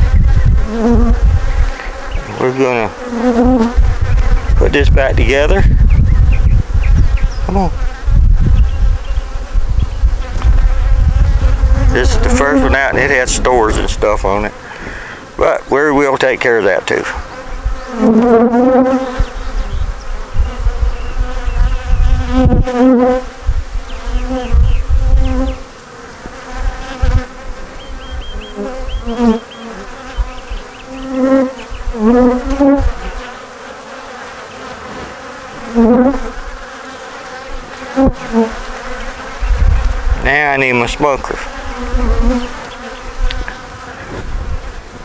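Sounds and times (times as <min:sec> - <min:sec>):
honeybees buzzing: 0:00.0 - 0:45.0.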